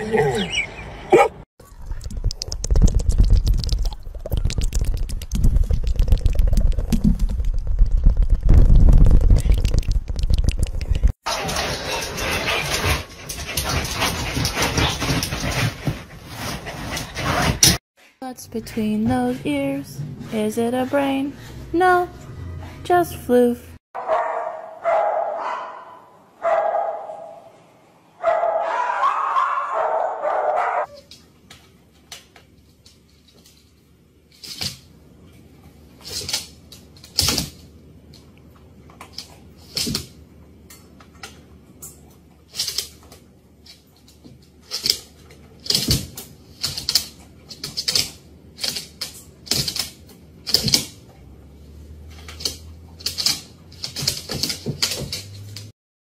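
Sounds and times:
dog drawn-out vocalization: 0.0 - 1.4
dogs barking: 0.0 - 1.4, 24.0 - 27.5, 28.2 - 31.0.

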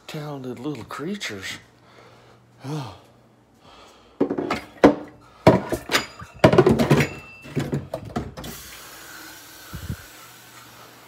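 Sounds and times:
knocks and clatters with metallic ring: 4.2 - 8.4
steady hiss: 8.4 - 11.0.

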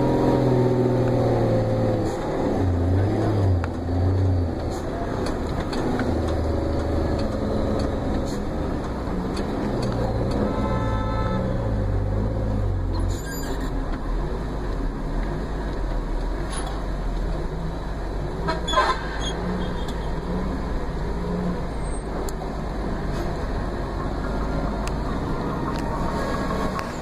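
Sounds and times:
vehicle engine and road noise: 0.0 - 27.0
short horn toot: 10.4 - 11.8.

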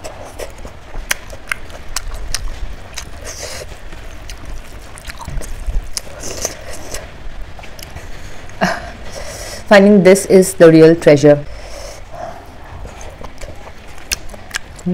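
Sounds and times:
chewing with wet mouth clicks: 0.0 - 7.0, 12.7 - 14.9.

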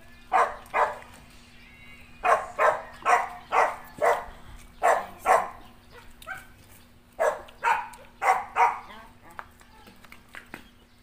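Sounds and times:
dog barking: 0.3 - 1.0, 2.2 - 6.6, 7.2 - 8.9.

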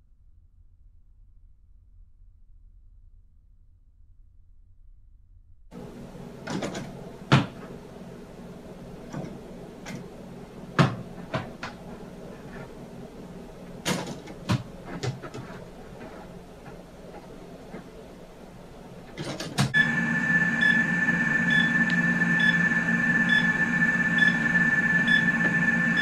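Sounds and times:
steady low hum: 5.6 - 26.0.

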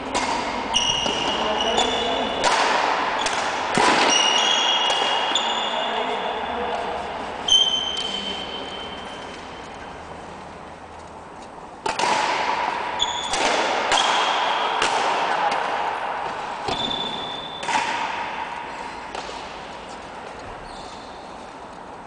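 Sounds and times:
rackets hitting shuttlecock: 0.0 - 10.0, 11.8 - 21.4
shoe squeaks on floor: 0.7 - 2.4, 4.1 - 6.3, 7.4 - 9.8, 13.0 - 13.4, 16.7 - 17.6, 20.4 - 21.4.

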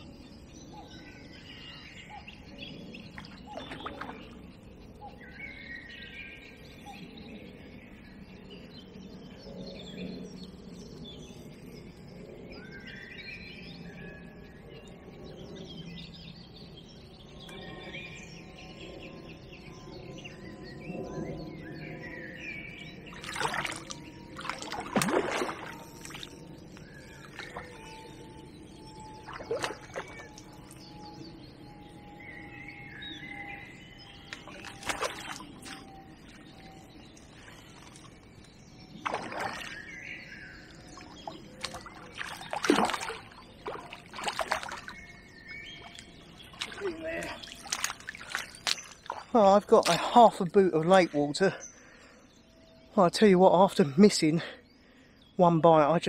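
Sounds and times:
birds singing: 0.0 - 56.0
loud water splashes: 23.2 - 26.3, 29.2 - 30.4, 34.5 - 35.8, 39.0 - 39.8, 41.6 - 44.9, 46.5 - 50.1.

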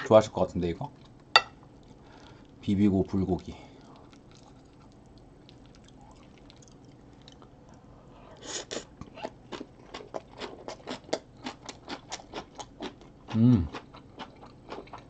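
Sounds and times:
person chewing with smacking: 3.4 - 15.0.

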